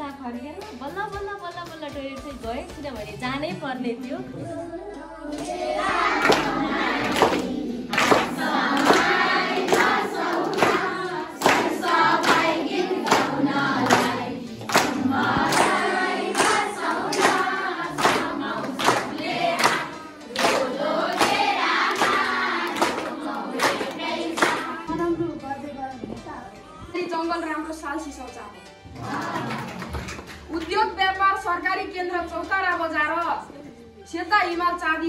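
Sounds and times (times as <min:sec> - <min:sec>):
children singing together: 0:04.4 - 0:24.9
rhythmic clapping: 0:05.2 - 0:25.2, 0:28.0 - 0:33.5.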